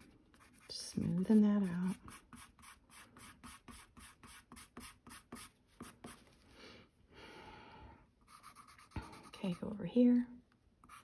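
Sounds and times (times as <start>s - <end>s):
pencil scratching on paper: 0.0s - 6.3s, 8.2s - 9.8s.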